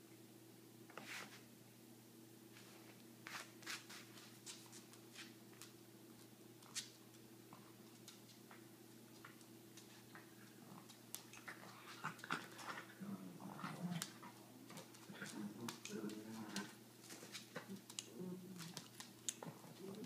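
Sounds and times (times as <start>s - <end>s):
dogs whimpering and grumbling: 10.7s - 16.8s, 17.6s - 20.0s.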